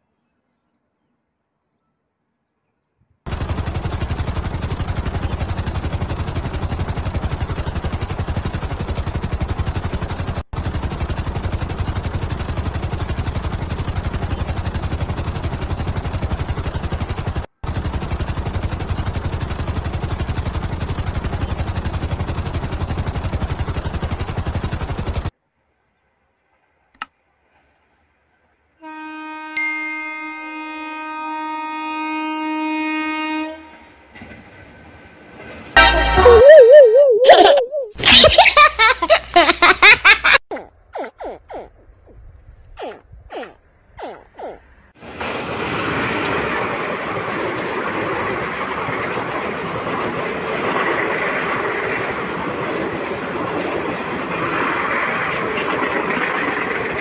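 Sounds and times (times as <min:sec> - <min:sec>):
helicopter rotor chopping: 0:03.3 - 0:25.3, 0:42.8 - 0:57.0
locomotive horn blast: 0:28.8 - 0:34.2, 0:35.8 - 0:36.7.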